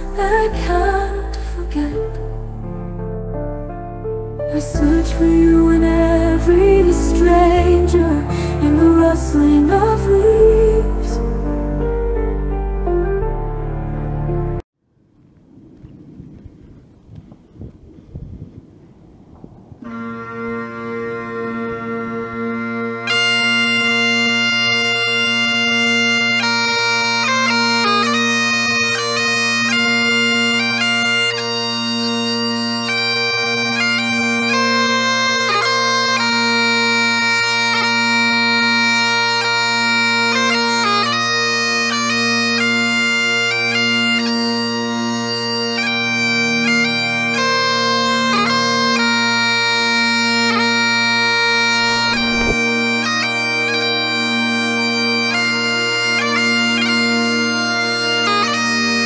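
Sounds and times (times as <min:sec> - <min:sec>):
bagpipe chanter melody: 0:19.8 - 0:59.0
bagpipe drones: 0:19.8 - 0:59.0.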